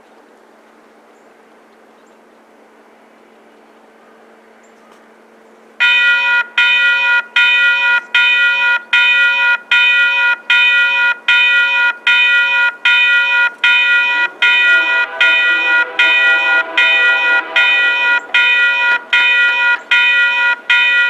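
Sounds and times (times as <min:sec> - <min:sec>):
level crossing bell ringing: 0:05.8 - 0:21.0
lower-pitched bell ringing: 0:05.8 - 0:21.0.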